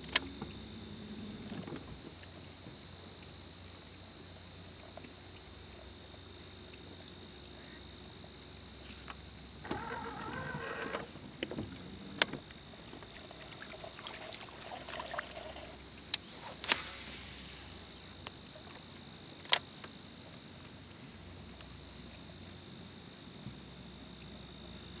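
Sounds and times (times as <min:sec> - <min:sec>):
faint steady high whine: 0:00.0 - 0:25.0
fishing reel whirring: 0:09.6 - 0:11.2.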